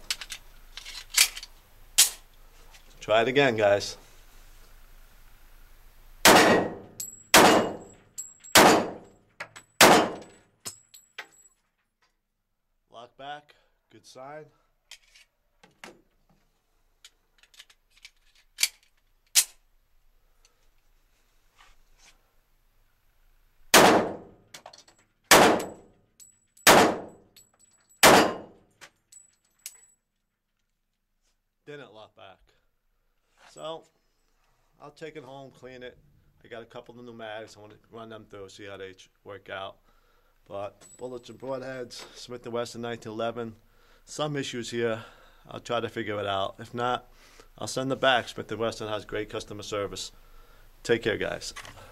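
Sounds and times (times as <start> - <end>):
pistol shots echoing indoors: 6.2 - 9.1, 9.8 - 10.4, 23.7 - 24.3, 25.3 - 25.8, 26.6 - 27.2, 28.0 - 28.6
light metallic clinks: 7.0 - 8.6, 10.6 - 11.7, 29.1 - 30.1.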